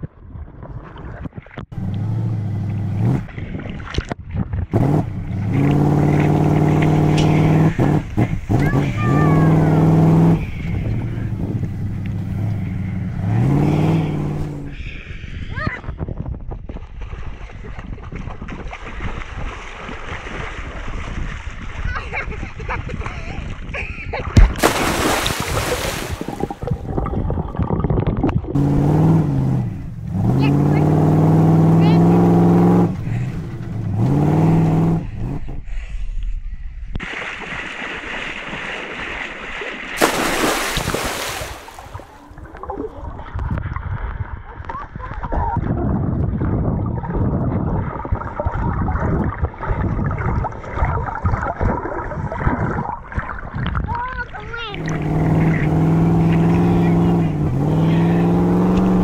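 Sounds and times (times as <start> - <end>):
underwater gurgling and sloshing: 0.0 - 2.0, 25.2 - 28.6, 40.7 - 55.6
water splashing: 4.8 - 13.4, 18.0 - 22.1, 24.2 - 31.1, 37.0 - 43.6, 47.8 - 59.0.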